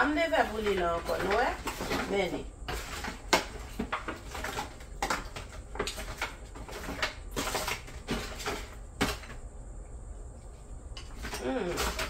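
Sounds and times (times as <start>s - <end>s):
foil pan crinkling and rattling: 0.0s - 9.4s.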